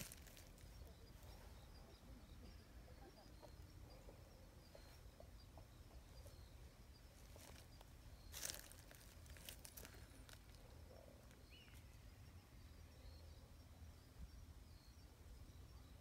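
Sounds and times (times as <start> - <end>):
soft rustle: 0.0 - 1.4, 7.2 - 11.9.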